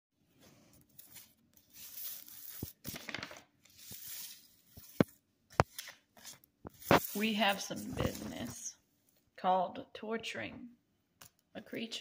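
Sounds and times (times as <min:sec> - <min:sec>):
rustling scraping handling noise: 0:00.4 - 0:08.7.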